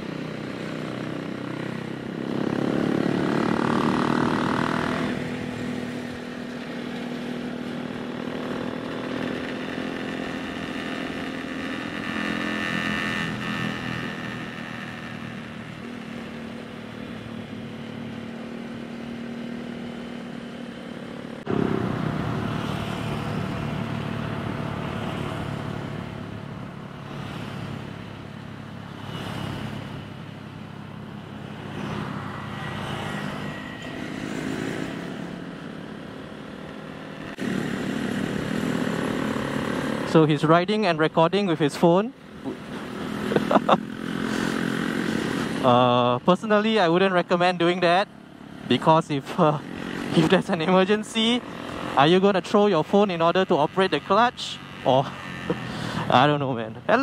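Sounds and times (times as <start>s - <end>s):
motorcycle engine running: 0.0s - 29.0s, 42.4s - 57.0s.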